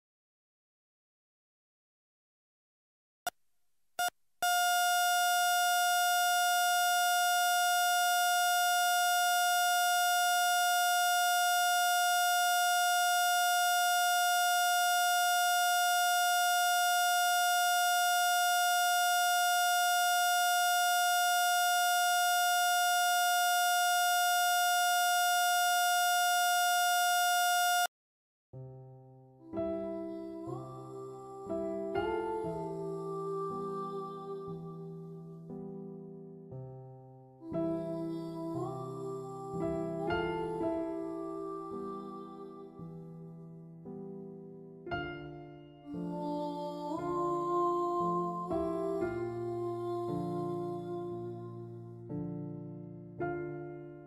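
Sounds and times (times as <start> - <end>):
heart monitor flatline tone: 4.0 - 27.9.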